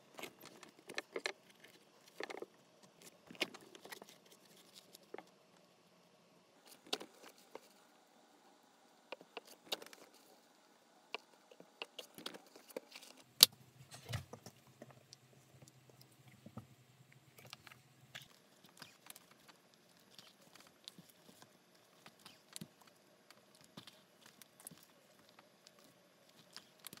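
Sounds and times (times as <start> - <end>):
hand-stitching leather ticks and rustles: 14.3 - 27.0.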